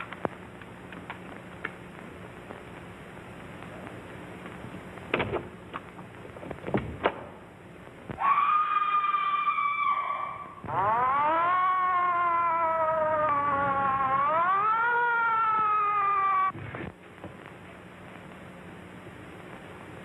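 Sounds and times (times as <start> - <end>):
siren wailing: 8.2 - 16.6.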